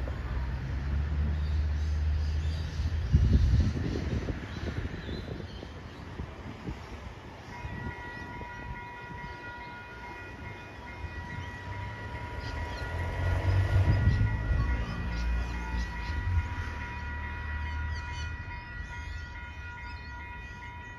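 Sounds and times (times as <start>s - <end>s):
tram approaching: 0.0s - 20.9s
level crossing warning alarm: 7.6s - 20.9s.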